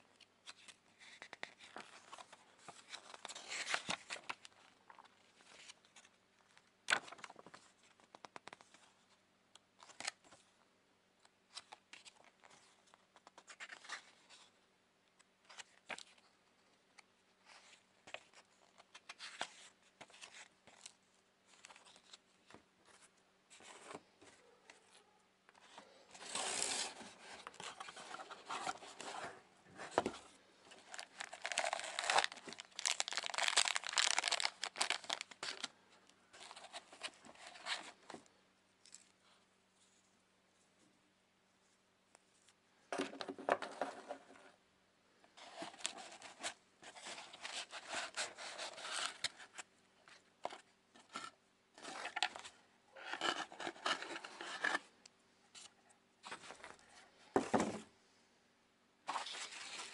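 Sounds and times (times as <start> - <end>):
paper and cardboard rustling: 0.4 - 6.1, 25.6 - 35.7, 36.3 - 38.2, 45.4 - 54.9, 59.1 - 59.9
packaging crinkling: 30.8 - 35.7.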